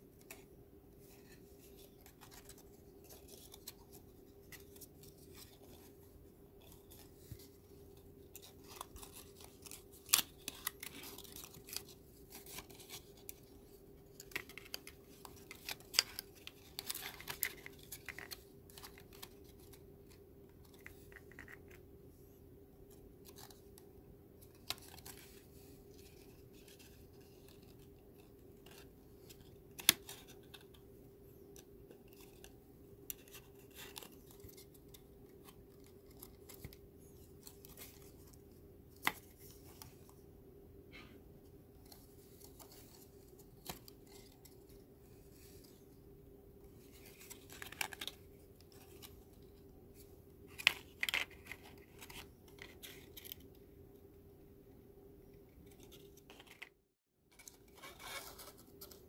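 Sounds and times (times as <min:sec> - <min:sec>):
paper rustling and scraping: 0:57.3 - 0:59.0.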